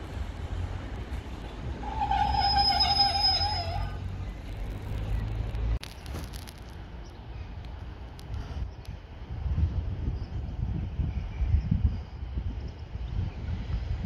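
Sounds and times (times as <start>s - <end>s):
train horn: 1.8s - 4.0s.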